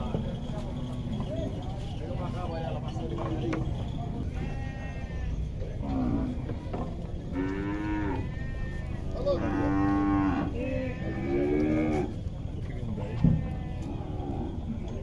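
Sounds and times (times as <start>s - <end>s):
cattle mooing: 7.3s - 12.2s.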